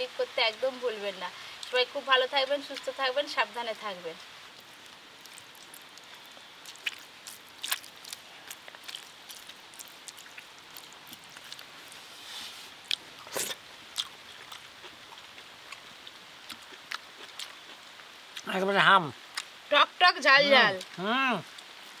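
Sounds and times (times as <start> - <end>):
light rain hiss: 0.0 - 22.0
chewing: 4.6 - 12.0, 12.8 - 18.5.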